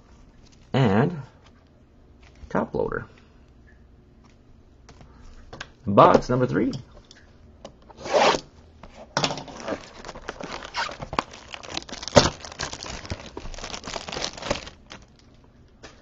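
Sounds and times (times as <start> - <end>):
cardboard and wrapping tearing: 9.5 - 15.3.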